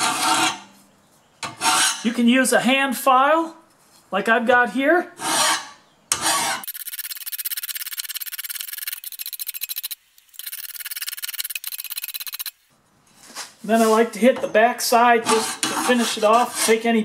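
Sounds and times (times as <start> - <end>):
hand file rasping on steel blade: 1.4 - 2.1, 5.2 - 6.7, 15.2 - 16.9.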